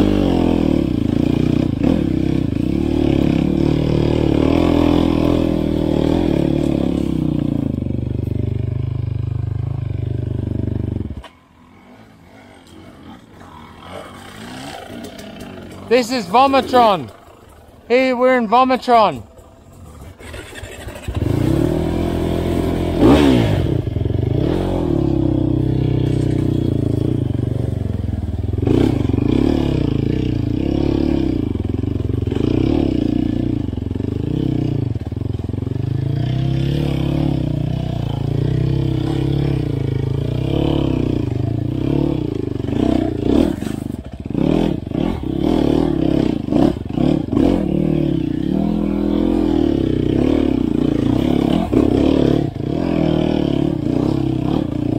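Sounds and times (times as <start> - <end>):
dirt bike engine revving: 0.0 - 54.9.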